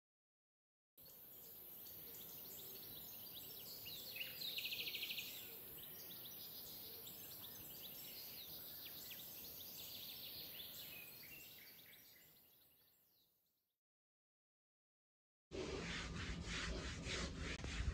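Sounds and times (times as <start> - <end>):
birds chirping and whistling: 1.8 - 12.4.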